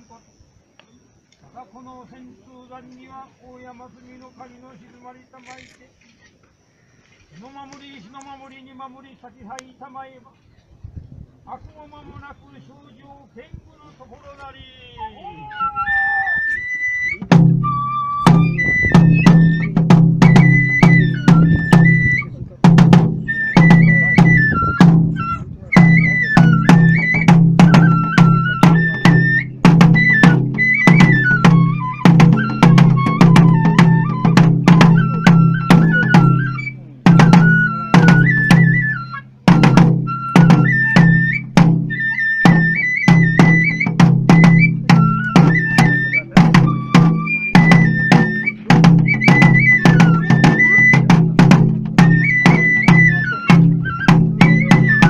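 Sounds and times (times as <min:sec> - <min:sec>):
bamboo flute melody: 0:14.6 - 0:55.0
taiko drum strikes: 0:17.3 - 0:38.8, 0:39.4 - 0:55.0.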